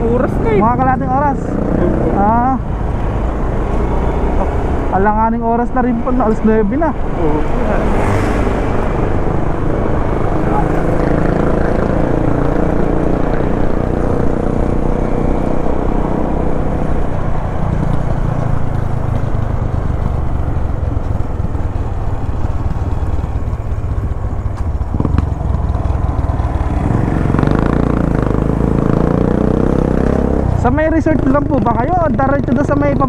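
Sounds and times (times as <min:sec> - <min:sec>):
road noise: 0:00.0 - 0:33.0
motorcycle engine running: 0:08.8 - 0:33.0.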